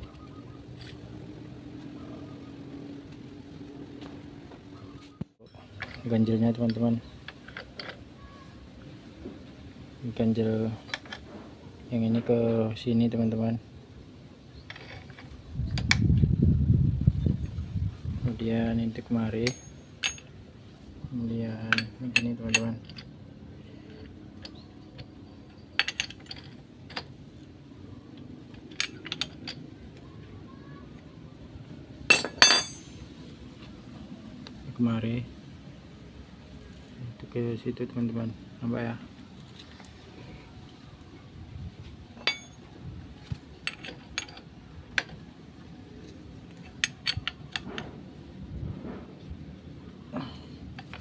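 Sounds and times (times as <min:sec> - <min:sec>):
metal tools clinking: 0:05.5 - 0:08.0, 0:10.8 - 0:11.4, 0:14.6 - 0:15.9, 0:19.2 - 0:20.4, 0:21.5 - 0:27.5, 0:28.4 - 0:29.7, 0:32.1 - 0:33.2, 0:42.2 - 0:42.7, 0:43.4 - 0:45.2, 0:46.0 - 0:48.0, 0:50.2 - 0:51.0.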